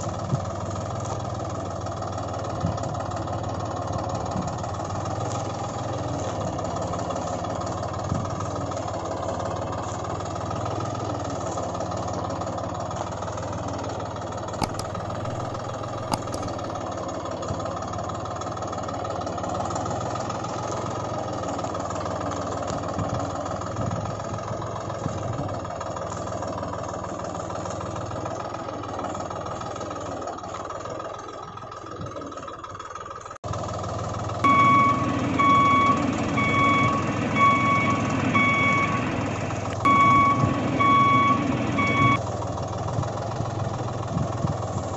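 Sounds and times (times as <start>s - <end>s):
tractor engine idling: 0.0s - 44.9s
sharp clicks: 14.6s - 16.6s.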